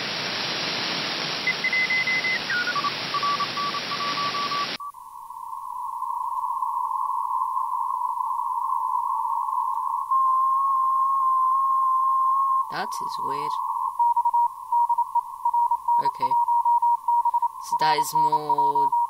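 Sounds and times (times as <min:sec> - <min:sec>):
radio static hiss: 0:00.0 - 0:19.0
morse code tone: 0:01.6 - 0:04.9, 0:10.1 - 0:19.0.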